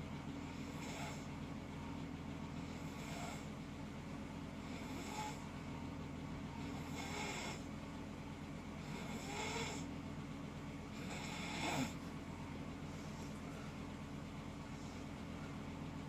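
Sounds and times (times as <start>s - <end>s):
steady low hum: 0.0s - 16.0s
person snoring: 6.8s - 7.7s, 8.8s - 9.9s, 11.0s - 12.0s.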